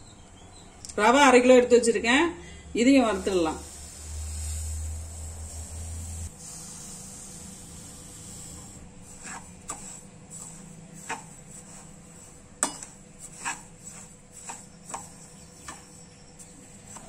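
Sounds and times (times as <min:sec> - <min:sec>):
spatula scraping a pan: 0:03.1 - 0:17.0
grainy pouring hiss: 0:03.2 - 0:12.5.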